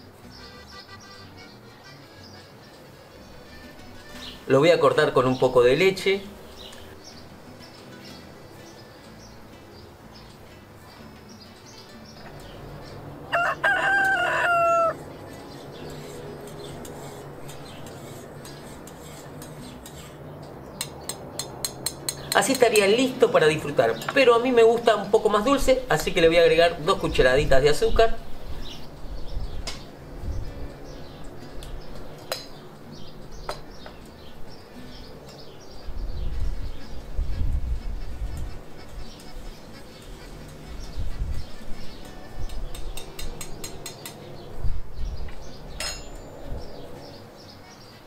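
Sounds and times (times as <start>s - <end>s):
birds chirping: 0.0s - 48.0s
rooster crowing: 13.3s - 15.0s
teaspoon clinking against metal: 45.8s - 46.3s.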